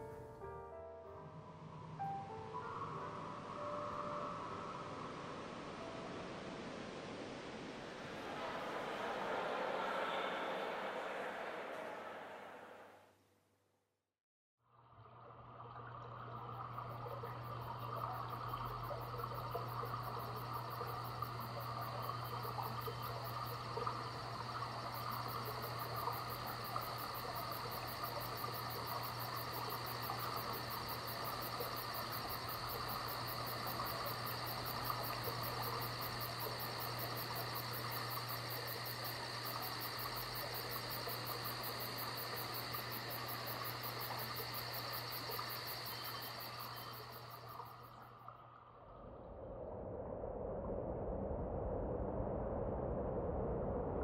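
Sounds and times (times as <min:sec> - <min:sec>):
crickets chirping: 0:00.0 - 0:12.6, 0:15.6 - 0:48.6
low steady hum: 0:14.8 - 0:54.0.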